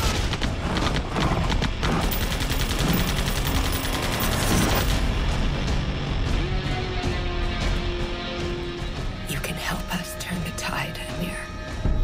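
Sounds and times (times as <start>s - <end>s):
rapid automatic gunfire: 0.0s - 5.0s
film music score: 0.0s - 12.0s.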